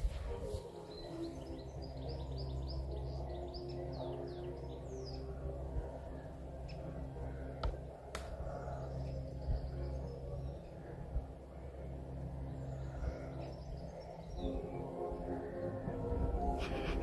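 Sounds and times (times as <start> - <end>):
low steady hum of held tones: 0.0 - 17.0
songbird chirping: 0.0 - 17.0
sharp clicks: 7.6 - 8.4.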